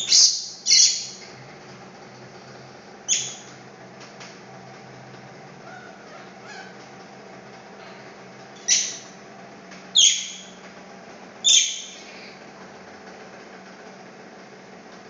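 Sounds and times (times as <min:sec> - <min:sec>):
steady background hum: 0:00.0 - 0:15.0
baby monkey crying: 0:05.6 - 0:06.8.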